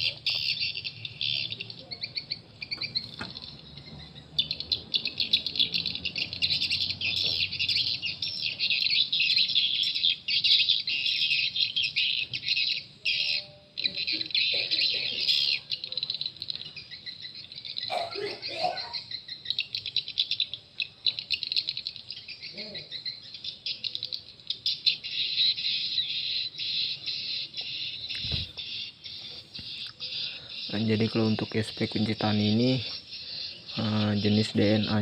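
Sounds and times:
recorded bird chirping through speakers: 0.0s - 35.0s.

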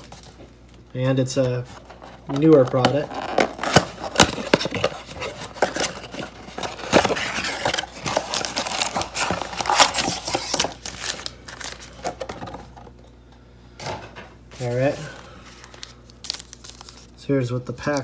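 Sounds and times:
plastic crinkling and rustling: 1.3s - 12.9s, 14.6s - 17.2s.

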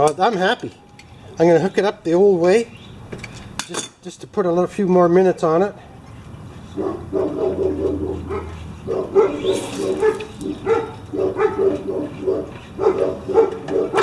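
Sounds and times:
animal yapping: 6.8s - 14.0s.

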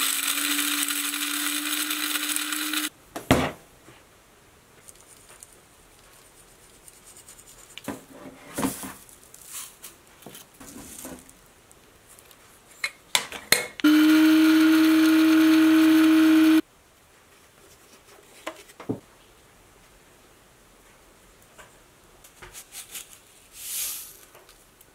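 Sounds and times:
spice grinder motor whirring: 0.0s - 2.9s, 13.8s - 16.6s.

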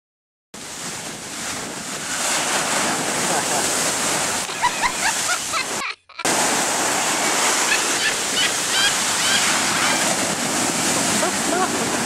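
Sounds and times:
waves breaking on beach: 0.6s - 12.0s.

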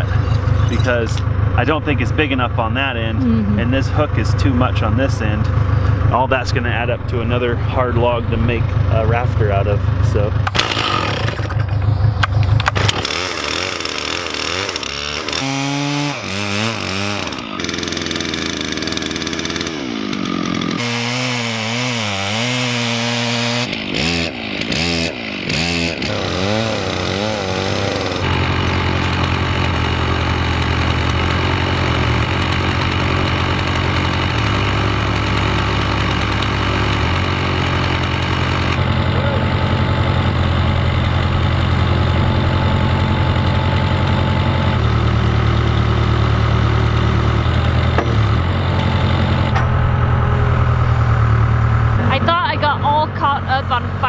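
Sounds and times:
backhoe engine running: 0.0s - 54.0s
chainsaw cutting log: 10.2s - 49.7s.

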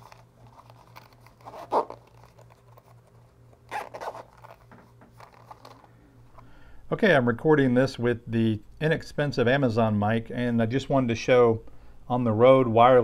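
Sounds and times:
case handling: 0.0s - 6.5s
faint low hum: 0.0s - 13.0s
zipper being run: 1.3s - 2.4s.

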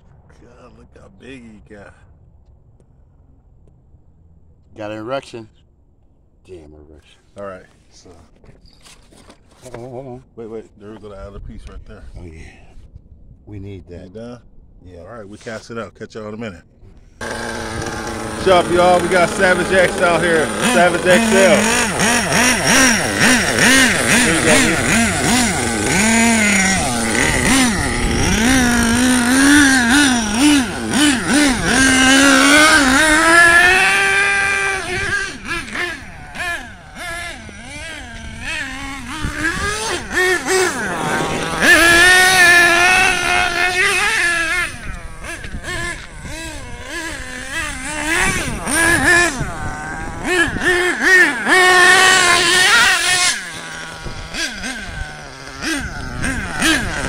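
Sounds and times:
small nitro engine revving: 17.2s - 57.0s.

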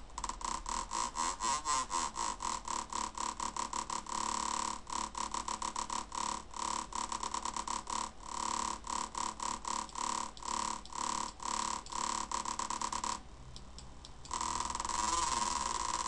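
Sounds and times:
pulsing synthesized buzzy tone: 14.3s - 16.0s.

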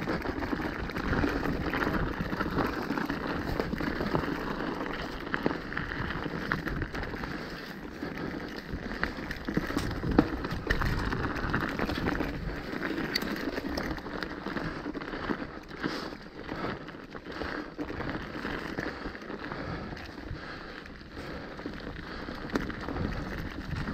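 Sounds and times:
bike knocking and rattling: 0.0s - 23.9s
bike tyres crunching over stones: 0.0s - 23.9s.

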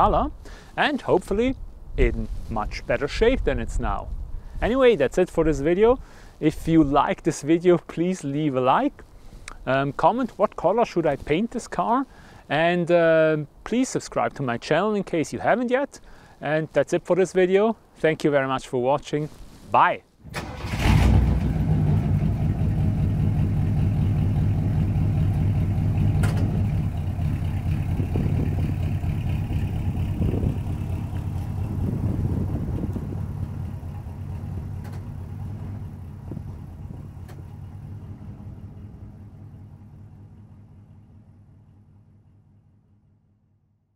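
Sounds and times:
car engine starting and idling: 20.2s - 43.6s.

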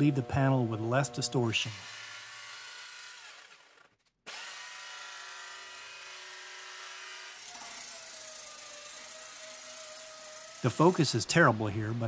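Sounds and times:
power tool whine: 0.0s - 11.1s
jigsaw cutting aluminum: 1.5s - 11.0s.

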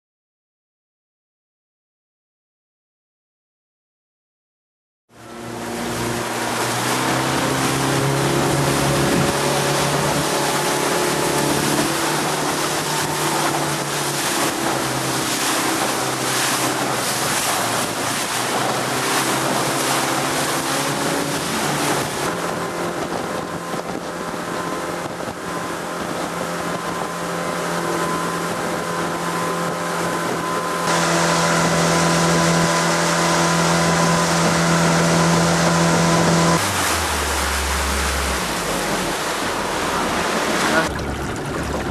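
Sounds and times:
outboard motor droning: 5.1s - 41.9s
wind: 5.1s - 41.9s
water spray rushing: 5.7s - 24.0s, 24.6s - 41.9s.

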